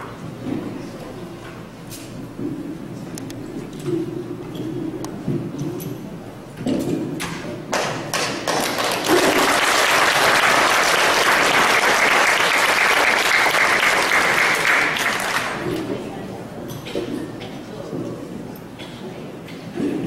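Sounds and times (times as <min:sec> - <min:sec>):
audience applauding: 0:08.1 - 0:15.7.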